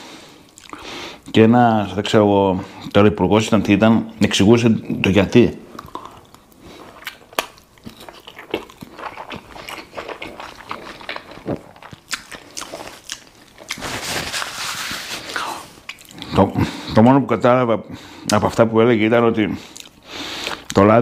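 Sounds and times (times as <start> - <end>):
person chewing bread: 0.4 - 0.8, 5.7 - 16.6, 19.6 - 20.8.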